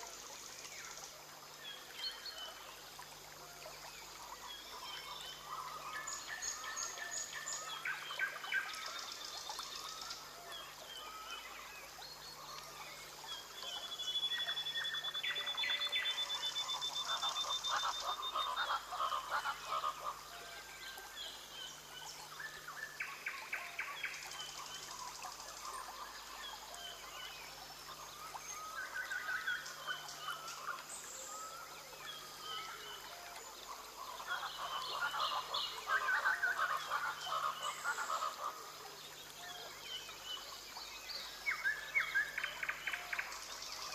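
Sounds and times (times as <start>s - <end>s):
frogs chirping and croaking: 13.4s - 20.3s, 31.8s - 40.2s.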